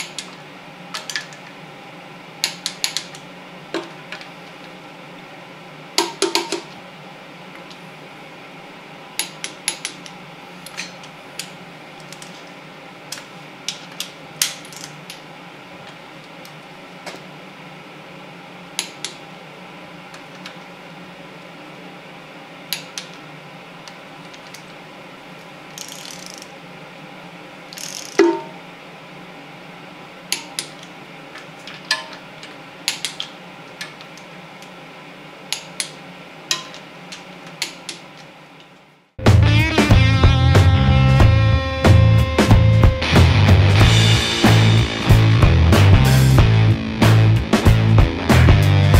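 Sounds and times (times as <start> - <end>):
steady hum: 0.0 - 48.9
ratchet wrench clicking: 25.8 - 26.5, 27.8 - 28.2.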